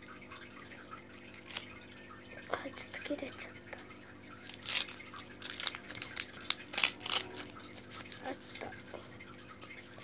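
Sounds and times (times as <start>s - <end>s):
wrapper crinkling and tearing: 1.2s - 1.7s, 4.4s - 8.8s.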